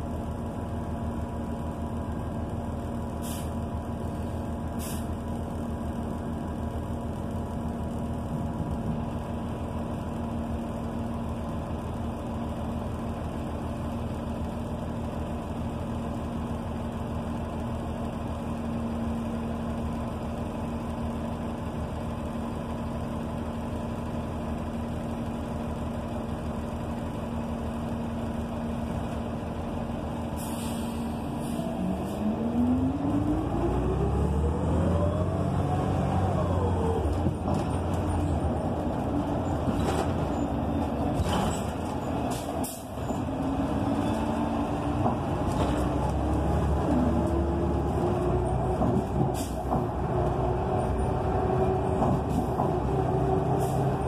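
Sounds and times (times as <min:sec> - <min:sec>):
bus engine: 0:00.0 - 0:54.0
air brake hiss: 0:03.2 - 0:03.6, 0:04.8 - 0:05.1, 0:30.4 - 0:31.6, 0:49.4 - 0:49.7.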